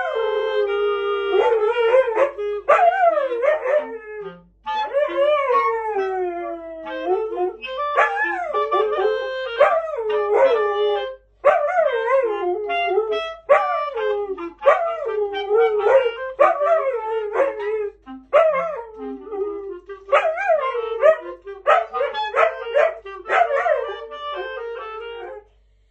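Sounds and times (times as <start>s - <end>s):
dog howling: 0.0s - 4.2s, 14.6s - 19.5s, 20.1s - 25.4s
clarinet notes: 0.0s - 25.9s.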